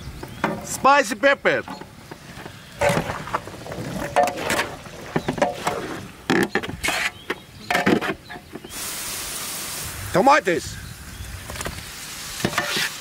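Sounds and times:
metal spatula scraping in a pan: 12.5 - 13.0.

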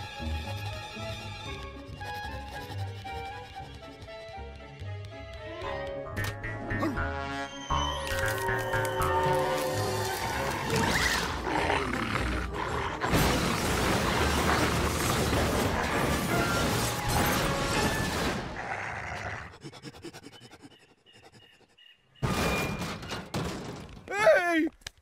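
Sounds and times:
dramatic cartoon music: 0.0 - 22.7
crashing and rumbling effects: 13.1 - 18.6.

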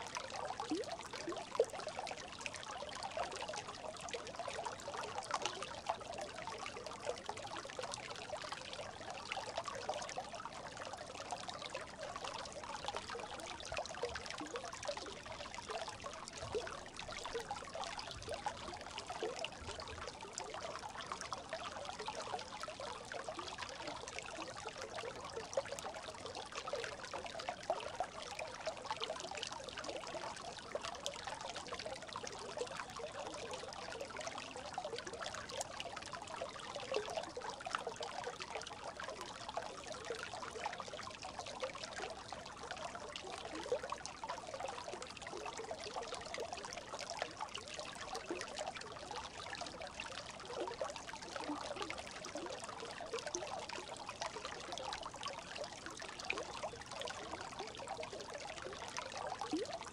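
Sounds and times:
brook babbling: 0.0 - 59.9.

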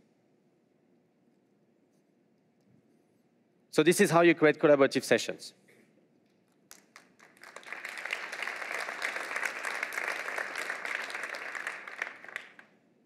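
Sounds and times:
audience applauding: 6.7 - 12.7.

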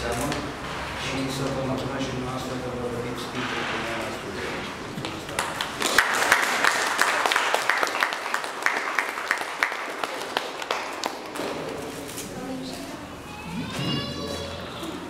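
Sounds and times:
audience applauding: 5.3 - 11.4.

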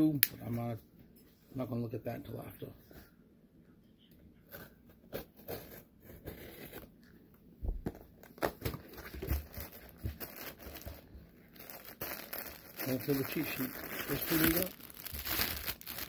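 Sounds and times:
cardboard tearing: 11.6 - 16.0.

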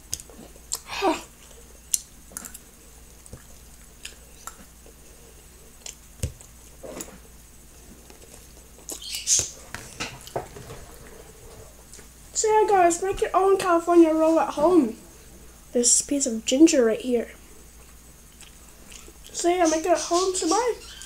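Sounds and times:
chewing: 0.1 - 7.2, 17.8 - 19.4.

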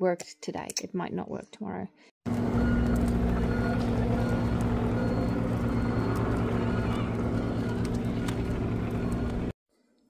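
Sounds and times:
vehicle engine humming: 2.3 - 9.6.

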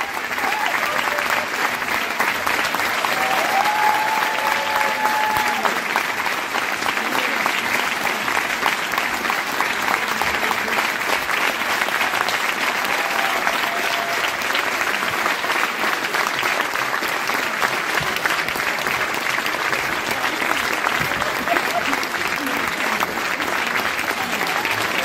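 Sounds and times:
audience applauding: 0.0 - 25.0.

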